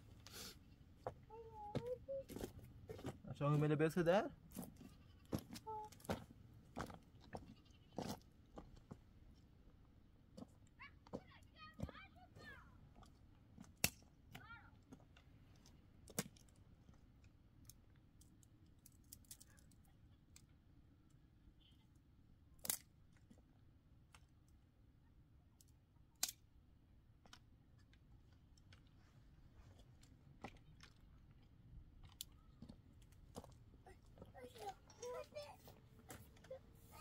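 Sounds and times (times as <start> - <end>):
small clicks and crackles: 13.8 - 20.6.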